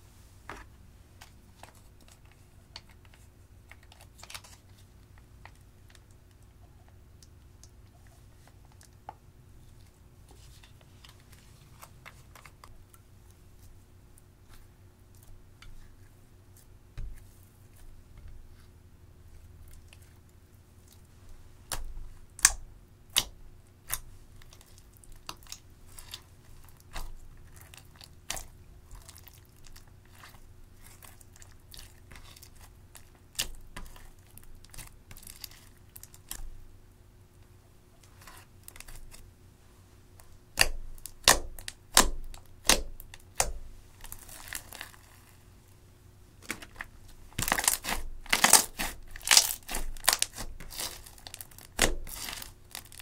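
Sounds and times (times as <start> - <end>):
sticky slime popping and crackling: 21.7 - 36.6, 40.2 - 45.3, 46.4 - 53.0.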